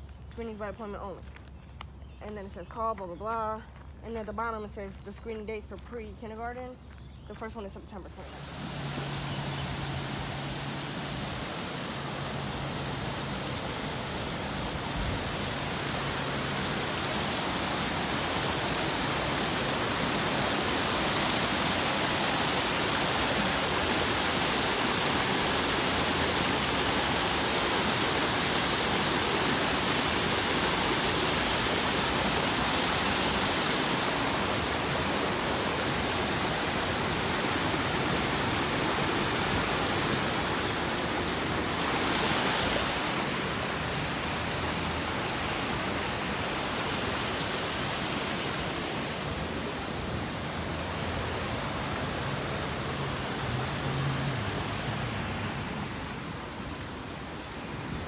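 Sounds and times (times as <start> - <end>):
water rushing: 8.0 - 58.0.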